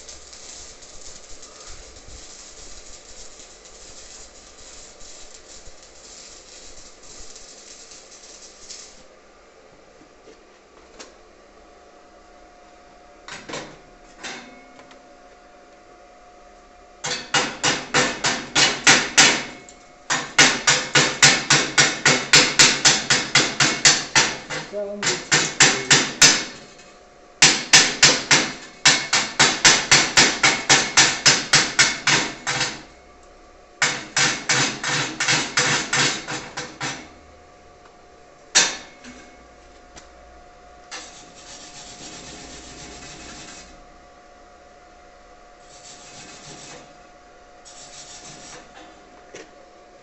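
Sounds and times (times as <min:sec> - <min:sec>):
chipping hammer striking weld slag: 0:17.0 - 0:26.7, 0:27.4 - 0:32.9, 0:33.8 - 0:37.1, 0:38.6 - 0:39.2.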